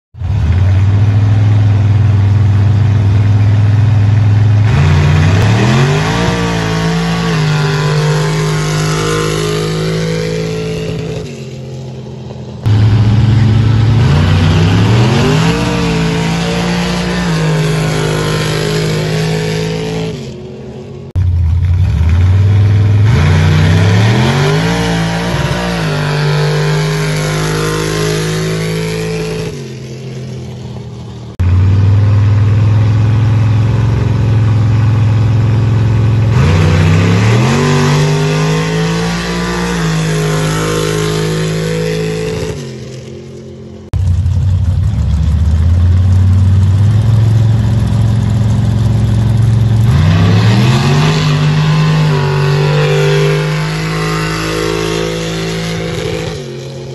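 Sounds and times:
truck engine revving at full throttle: 0.2 - 56.9.

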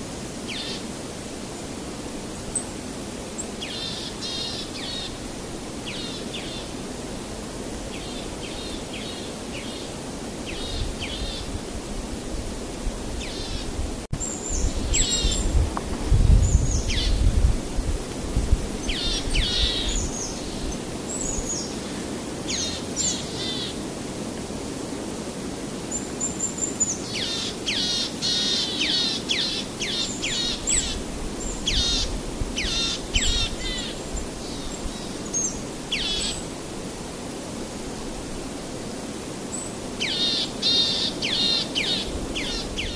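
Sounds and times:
outdoor background noise: 0.0 - 42.9
small birds chirping: 18.8 - 23.8.

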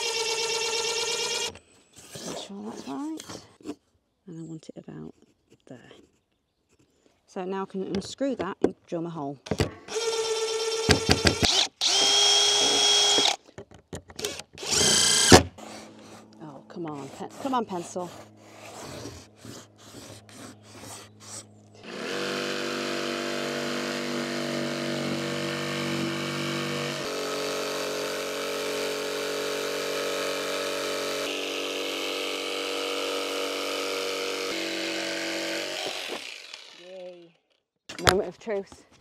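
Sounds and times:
jigsaw cutting timber: 0.0 - 1.6, 9.6 - 13.4, 14.2 - 37.2.

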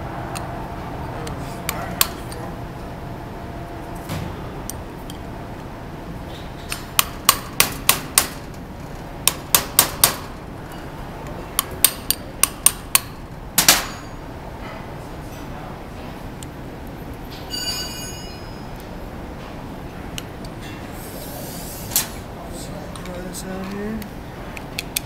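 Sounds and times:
hammer tapping metal punch: 9.2 - 10.3.

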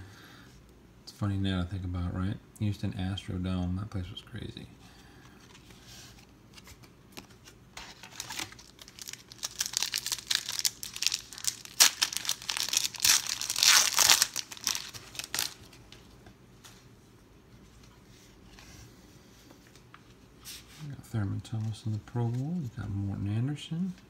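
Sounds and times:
foil wrapper crinkling and tearing: 7.8 - 15.8.

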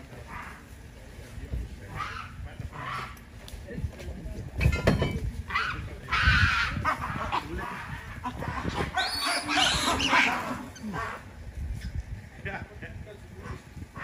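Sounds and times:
baboons screaming: 0.0 - 0.8, 1.8 - 3.3, 5.4 - 11.4, 13.4 - 14.0.

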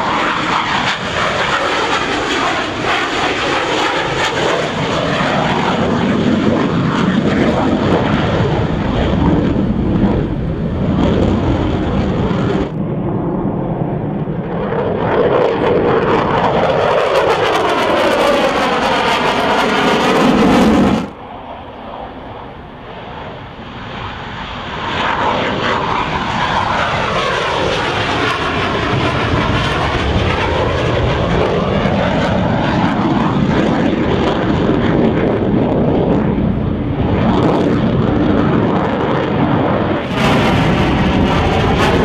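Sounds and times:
jet engines roaring on takeoff: 0.0 - 42.0.

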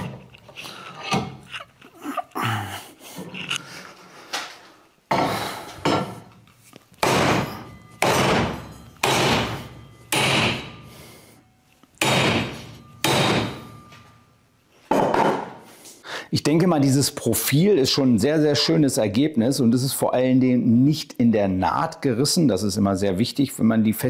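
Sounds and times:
hammer striking metal: 7.0 - 11.3, 12.0 - 14.2.

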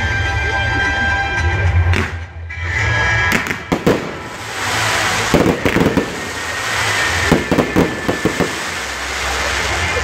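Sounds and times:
fireworks crackling bangs: 3.3 - 10.0.

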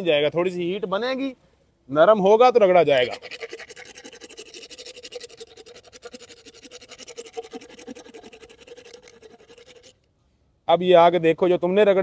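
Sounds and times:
metal rasp filing teeth: 3.0 - 10.0.

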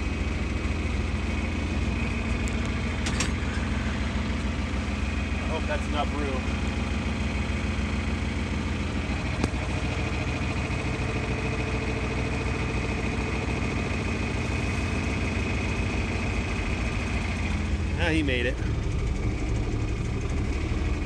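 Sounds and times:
tractor engine running: 0.0 - 21.0.

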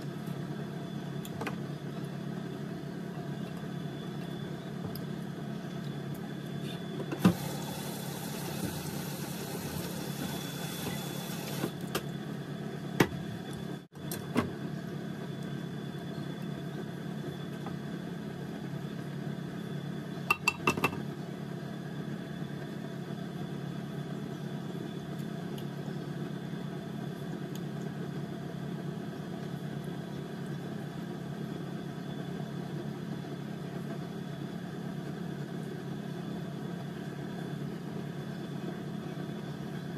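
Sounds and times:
kitchen appliance humming: 0.0 - 18.5, 20.3 - 21.1.

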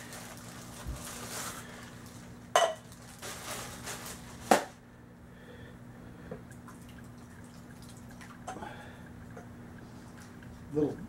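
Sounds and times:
plastic bag crinkling: 0.0 - 4.8.

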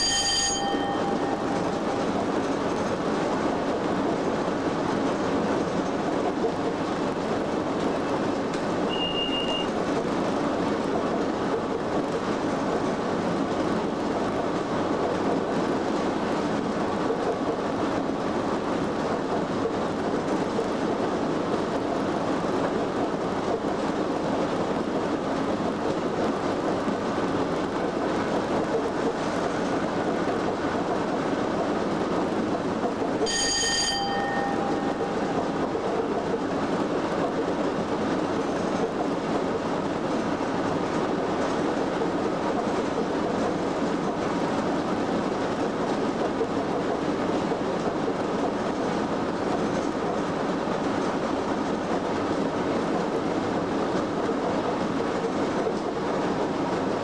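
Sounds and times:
wheels rumbling on rail: 0.0 - 57.0
short high beep: 8.9 - 9.7.

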